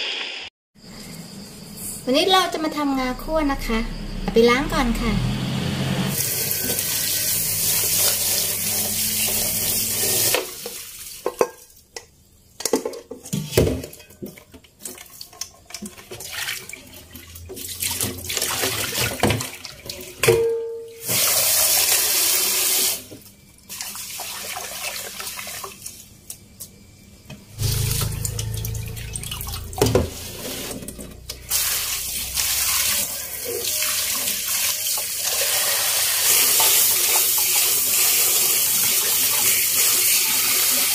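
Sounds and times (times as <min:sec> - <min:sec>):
rinse water pouring: 0:06.1 - 0:11.7, 0:14.2 - 0:20.2, 0:21.0 - 0:26.1, 0:27.6 - 0:40.9.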